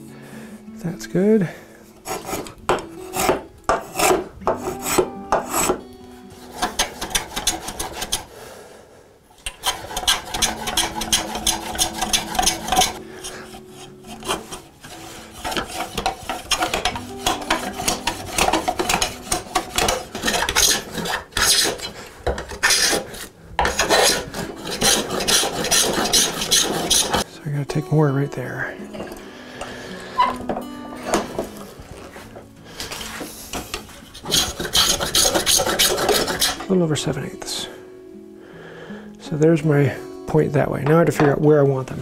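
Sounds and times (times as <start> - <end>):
spokeshave cutting wood: 2.0 - 8.3, 9.5 - 27.2, 33.1 - 36.7.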